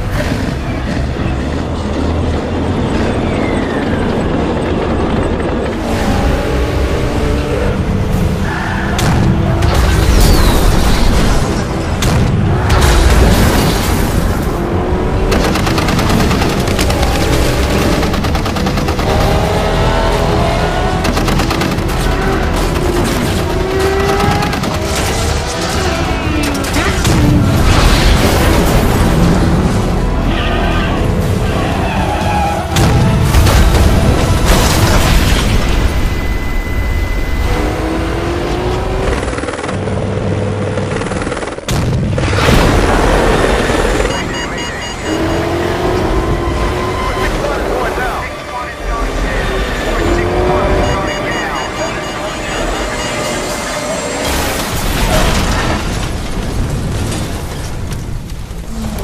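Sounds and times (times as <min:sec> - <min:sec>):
action film music: 0:00.0 - 0:59.0
vehicle engine noise: 0:00.0 - 0:59.0
machine-gun fire: 0:15.2 - 0:19.6, 0:21.0 - 0:25.4.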